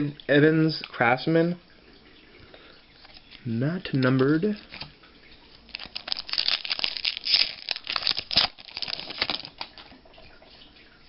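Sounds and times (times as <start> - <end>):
trading cards rustling and flicking: 5.7 - 10.0.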